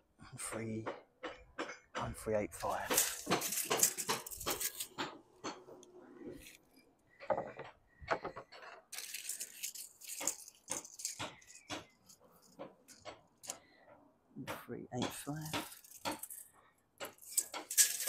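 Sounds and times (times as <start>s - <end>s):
steel tape measure rattling: 2.6s - 5.0s, 8.9s - 13.6s, 15.3s - 18.0s.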